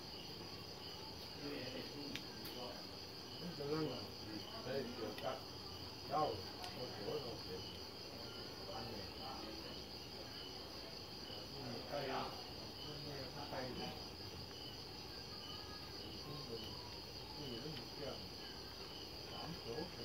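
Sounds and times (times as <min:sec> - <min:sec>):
crickets chirping: 0:00.0 - 0:20.0.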